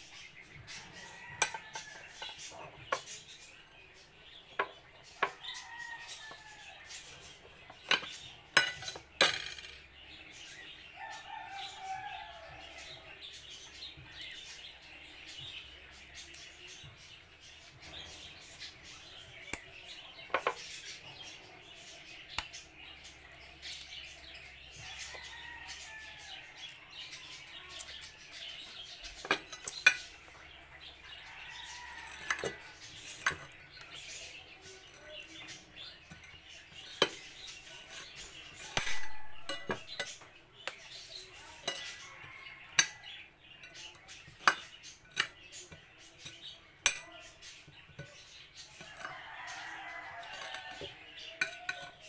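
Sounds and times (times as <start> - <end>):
birds chirping faintly: 0.0 - 52.0
utensils clinking against dishes: 0.1 - 52.0.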